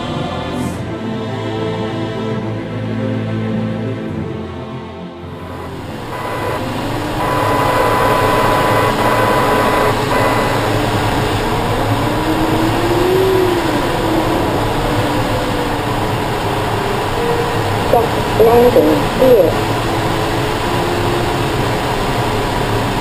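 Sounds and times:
faint tone rising and falling: 0:05.3 - 0:22.0.

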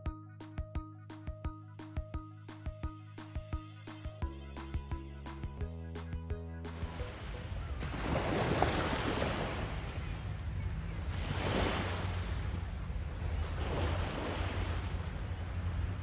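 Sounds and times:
waves washing onto beach: 0:06.8 - 0:16.0
wind rumble on microphone: 0:07.5 - 0:16.0.

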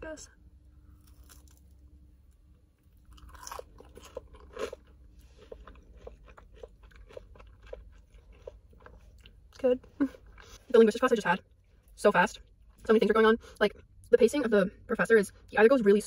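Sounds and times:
faint low hum: 0:00.0 - 0:16.0
person chewing crunchy food: 0:00.8 - 0:09.6.

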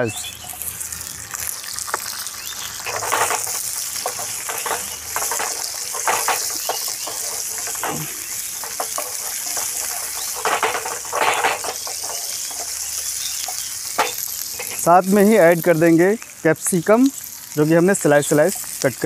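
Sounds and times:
onions sizzling in hot oil: 0:00.0 - 0:19.0
wooden spatula scraping pan: 0:02.8 - 0:14.9.

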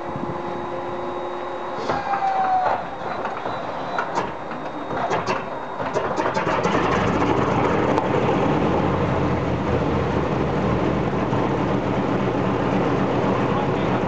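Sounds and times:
radial aircraft engine running: 0:00.0 - 0:14.0
engine backfire cracks: 0:04.0 - 0:08.3.

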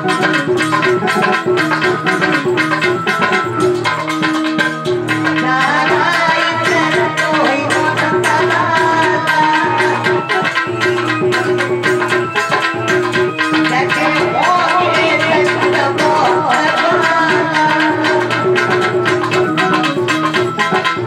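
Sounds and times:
hand drum beat: 0:00.0 - 0:21.0
devotional song: 0:05.4 - 0:10.6, 0:13.6 - 0:19.0.

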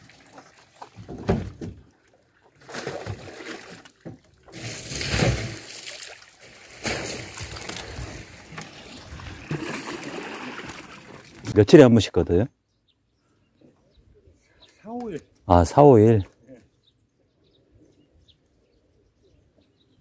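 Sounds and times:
fish flopping in plastic crates: 0:02.6 - 0:11.6.

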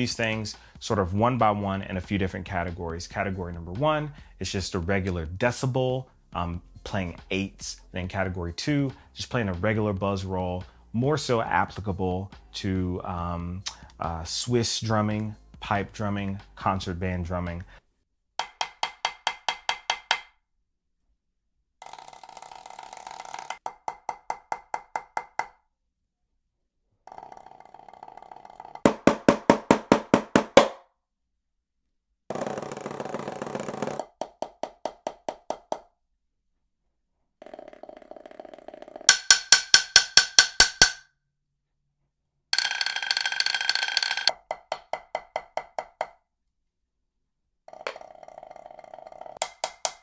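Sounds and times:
drumsticks on a practice pad: 0:18.4 - 0:20.3, 0:39.1 - 0:41.1
drumsticks on practice pad: 0:39.1 - 0:41.0.

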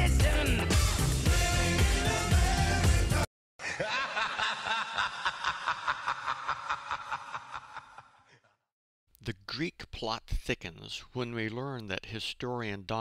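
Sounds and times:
person laughing: 0:03.6 - 0:08.3.

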